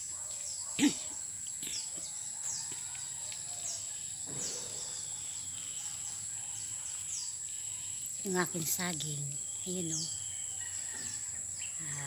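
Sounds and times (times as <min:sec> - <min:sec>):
birds chirping: 0:00.0 - 0:12.0
insects droning: 0:00.0 - 0:12.0.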